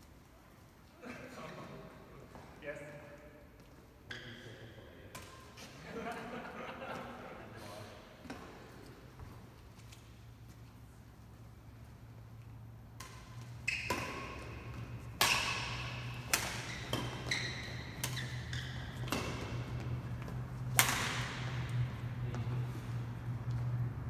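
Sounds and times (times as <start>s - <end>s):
shoes squeaking on court: 3.6s - 5.7s, 12.6s - 23.8s
badminton racket hitting shuttlecock: 12.9s - 22.0s.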